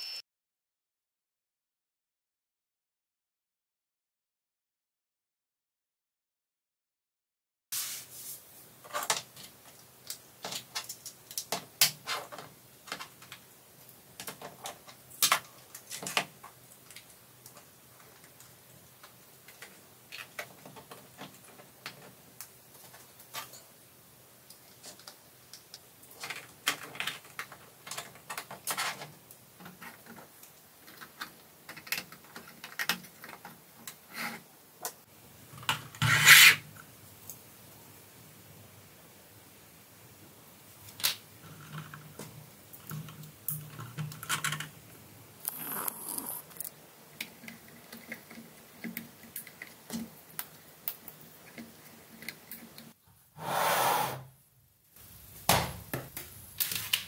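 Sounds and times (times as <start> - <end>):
plastic parts clicking and rubbing: 8.8 - 13.4, 24.8 - 34.0.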